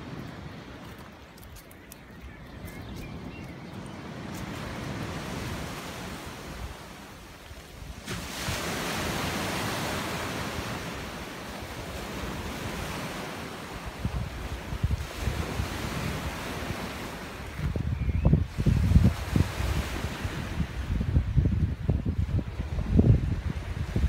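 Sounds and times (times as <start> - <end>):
wind rumble on microphone: 0.0 - 24.0
small waves breaking on beach: 4.0 - 21.3.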